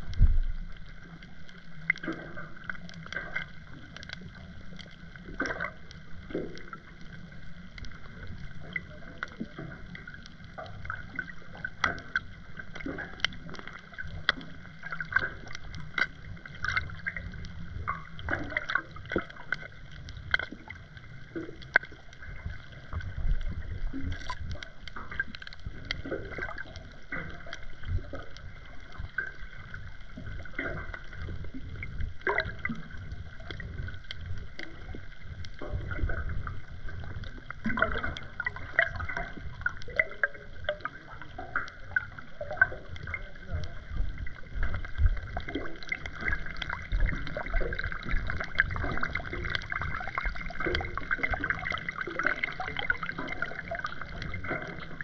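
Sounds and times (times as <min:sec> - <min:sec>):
muffled underwater water surge: 0:00.0 - 0:55.0.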